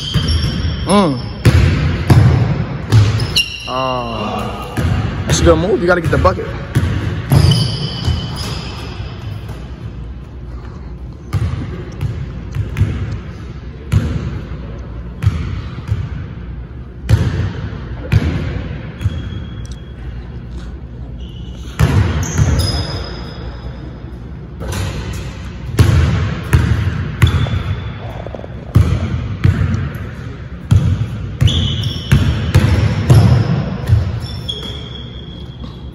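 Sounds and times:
basketball bouncing on wooden floor: 0:06.0 - 0:09.6, 0:11.3 - 0:13.1, 0:28.6 - 0:30.0
high squeaks: 0:07.3 - 0:09.2, 0:21.2 - 0:23.8, 0:34.1 - 0:35.9.

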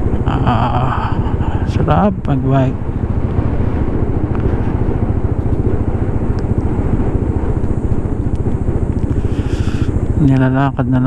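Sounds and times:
motorcycle engine and road noise: 0:00.0 - 0:11.0
wind rushing over microphone: 0:00.0 - 0:11.0.

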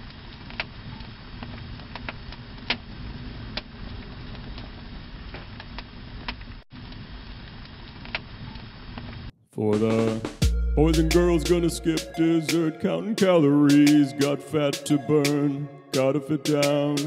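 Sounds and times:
crackling fire: 0:00.0 - 0:09.3.

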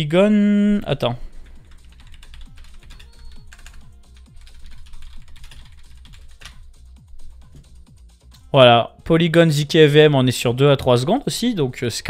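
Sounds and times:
faint background music: 0:00.0 - 0:12.0
computer keyboard typing: 0:01.5 - 0:06.7.

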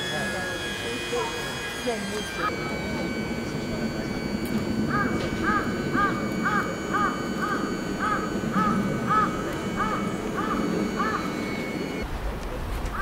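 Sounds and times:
crow cawing: 0:04.9 - 0:12.0.

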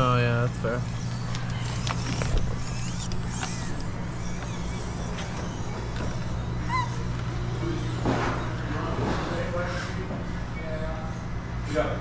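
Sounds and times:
steady low hum: 0:00.0 - 0:12.0
rc crawler creaking and scraping: 0:00.6 - 0:09.8
brief squeaks: 0:00.9 - 0:09.9.

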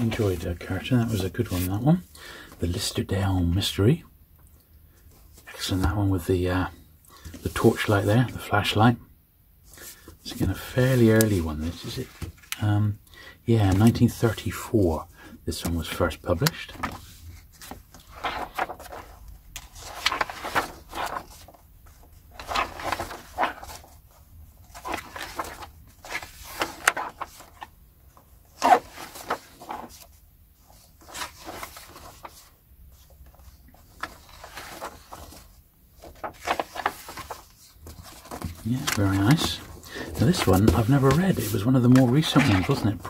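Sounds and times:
paper rustling swishes: 0:00.0 - 0:01.9, 0:07.2 - 0:08.6, 0:09.7 - 0:12.6, 0:15.5 - 0:43.0.

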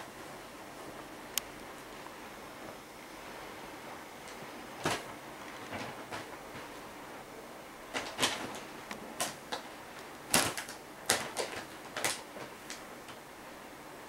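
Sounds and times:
paper bag crinkling: 0:07.9 - 0:09.7, 0:10.3 - 0:12.8.

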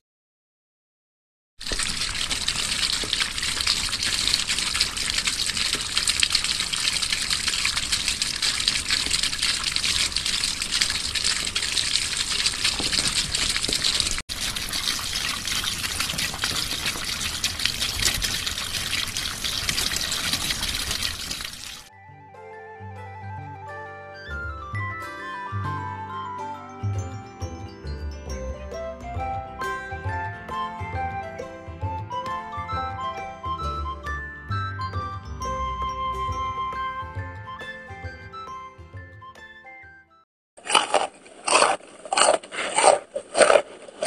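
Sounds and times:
water spraying from shower head: 0:01.6 - 0:21.9.

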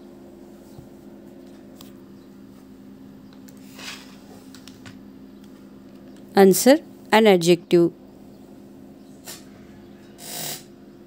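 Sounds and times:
low hum of held tones: 0:00.0 - 0:11.0.

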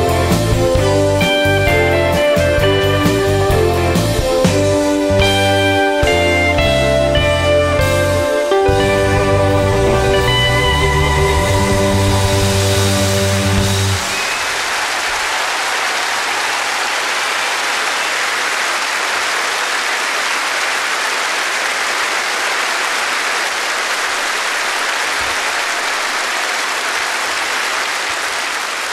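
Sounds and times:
large crowd applauding: 0:08.8 - 0:28.9.

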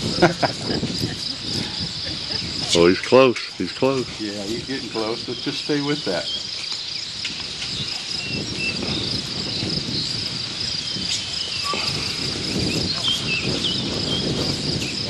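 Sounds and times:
high-pitched insect chorus: 0:00.0 - 0:15.0.

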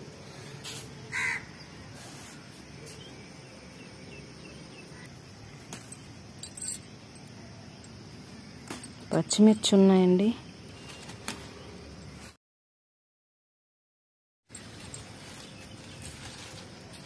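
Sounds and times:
faint outdoor background: 0:00.0 - 0:12.4, 0:14.5 - 0:17.0
crow cawing: 0:01.1 - 0:01.6
plants rustling when handled: 0:14.6 - 0:17.0.

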